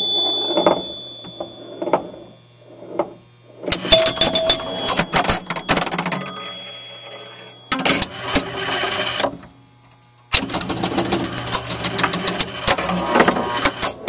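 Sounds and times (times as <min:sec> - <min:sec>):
pinball relays clicking: 0:03.7 - 0:09.4, 0:10.3 - 0:14.0.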